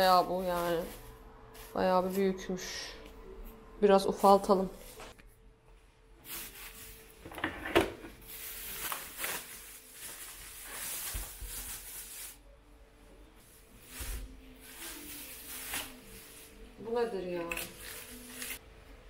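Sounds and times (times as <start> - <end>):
plastic bag rustling and crinkling: 0.0 - 2.7, 6.2 - 12.5, 13.4 - 18.6.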